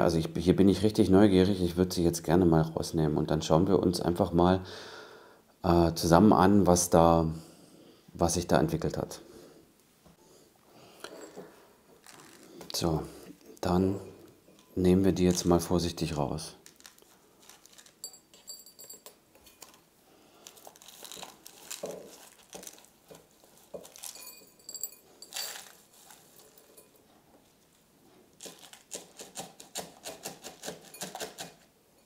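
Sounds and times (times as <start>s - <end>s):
plastic cup crinkling: 11.0s - 12.8s, 16.5s - 18.5s, 19.4s - 24.5s, 25.2s - 26.6s, 28.4s - 31.6s.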